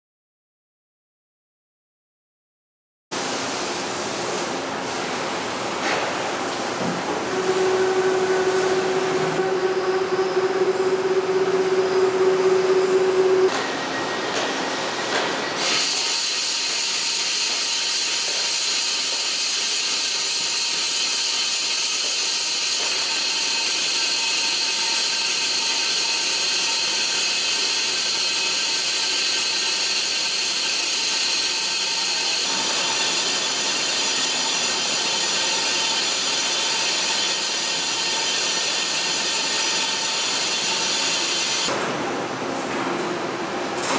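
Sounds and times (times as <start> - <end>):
machine hum: 6.2 - 15.0
high-pitched hiss of metal cutting: 15.6 - 41.7.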